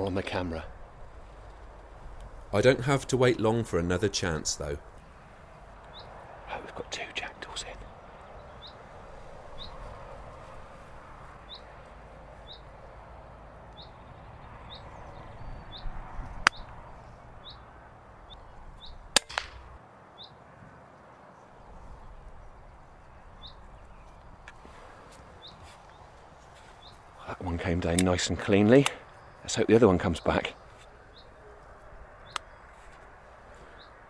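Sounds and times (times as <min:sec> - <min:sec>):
small bird chirping: 0:05.8 - 0:06.2, 0:07.6 - 0:08.8, 0:12.4 - 0:13.0, 0:13.7 - 0:17.6, 0:18.3 - 0:19.1
air rifle cracks: 0:19.1 - 0:19.8.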